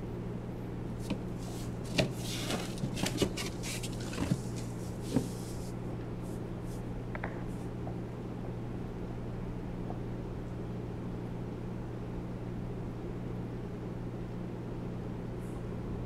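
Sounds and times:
steady low hum: 0.0 - 16.0
cardboard boxes knocking and scraping: 1.0 - 5.5.

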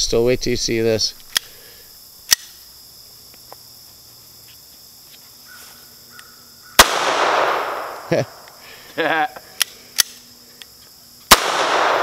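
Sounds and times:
pistol shot echoing: 6.8 - 8.1, 11.3 - 12.0.

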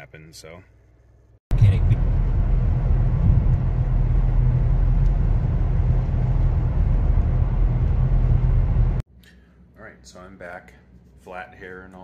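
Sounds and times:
road and engine rumble: 1.5 - 9.0.

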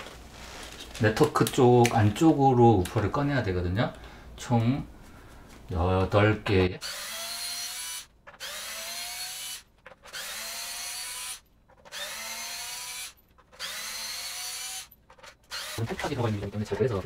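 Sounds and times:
power screwdriver motor whine: 6.8 - 14.9, 15.5 - 15.8.

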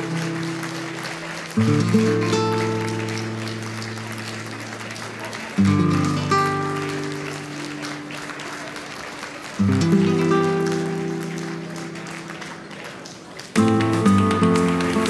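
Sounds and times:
acoustic guitar chords ringing: 1.6 - 4.5, 5.6 - 8.1, 9.6 - 12.2.

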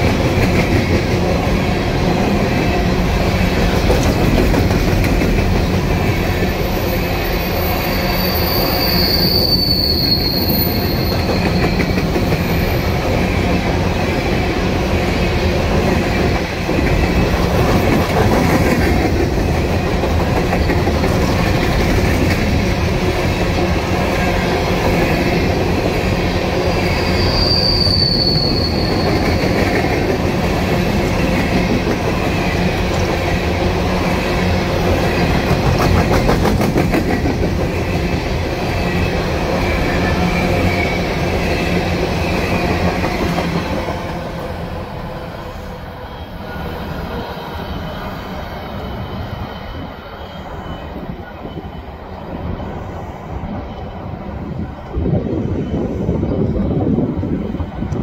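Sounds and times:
freight train wheels rumbling: 0.0 - 58.0
wheel squeal: 6.6 - 12.9, 26.8 - 29.6.

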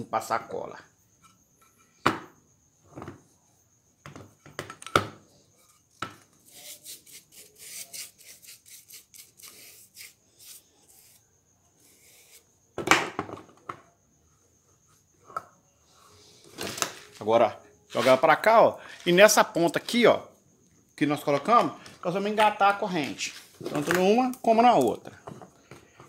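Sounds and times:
brush spreading glue: 6.4 - 11.2, 11.8 - 12.5.

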